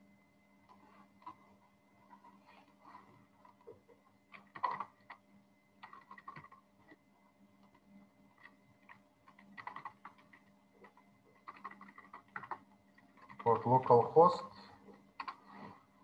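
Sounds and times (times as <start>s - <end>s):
faint steady hum: 0.0s - 16.0s
keyboard typing clicks: 5.8s - 7.0s, 8.4s - 14.0s.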